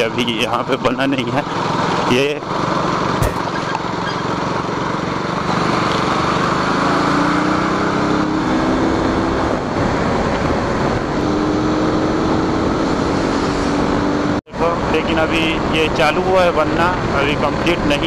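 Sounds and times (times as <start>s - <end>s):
motorcycle engine running: 2.6s - 5.5s.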